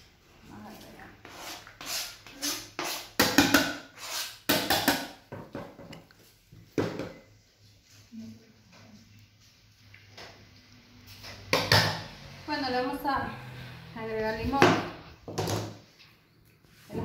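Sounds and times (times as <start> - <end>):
spatula scraping plastic bowl: 1.2 - 4.5.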